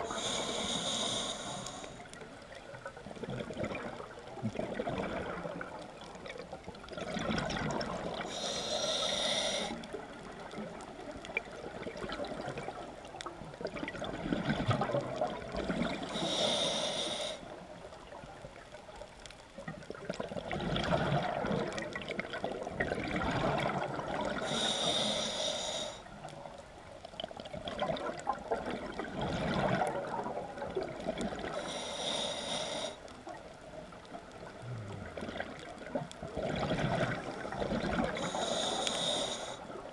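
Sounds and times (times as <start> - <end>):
regulator inhale hiss: 0.0 - 2.2, 8.3 - 10.0, 16.0 - 17.6, 24.4 - 26.1, 31.5 - 33.2, 38.1 - 39.8
exhaled bubbles rushing: 3.2 - 6.2, 6.8 - 8.2, 13.6 - 16.0, 20.0 - 24.4, 27.5 - 31.5, 34.4 - 38.4.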